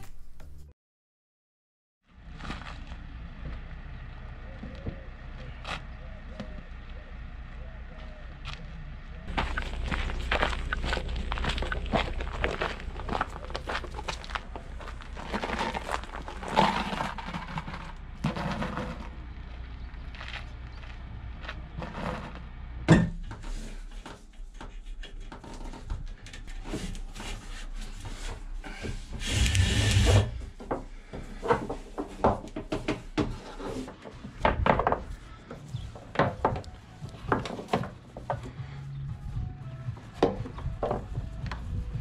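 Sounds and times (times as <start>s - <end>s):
knocks clunks and rubbing: 21.7s - 38.6s, 39.4s - 42.0s.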